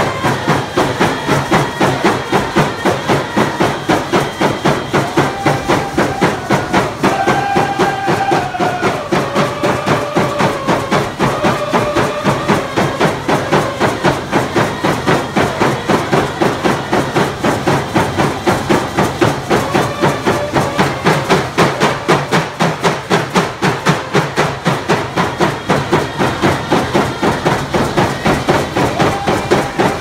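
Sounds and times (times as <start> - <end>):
voices singing: 0.0 - 22.3
hand drums beating: 0.0 - 30.0.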